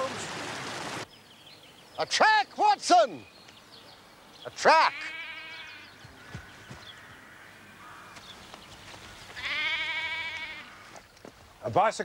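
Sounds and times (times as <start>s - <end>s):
sheep bleating: 4.6s - 6.0s, 9.4s - 10.9s.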